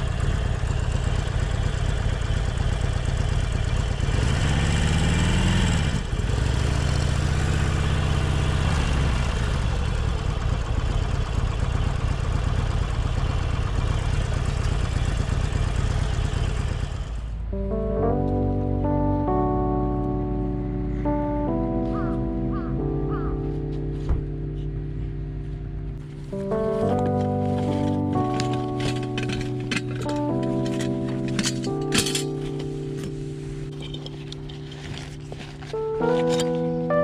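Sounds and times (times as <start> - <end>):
motorcycle engine revving: 0.0 - 17.6, 26.0 - 36.6.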